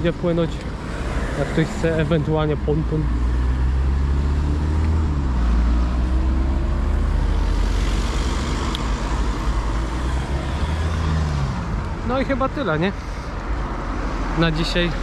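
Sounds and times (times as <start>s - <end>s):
cars driving along a street: 0.0s - 15.0s
car engine rising in pitch: 1.0s - 12.0s.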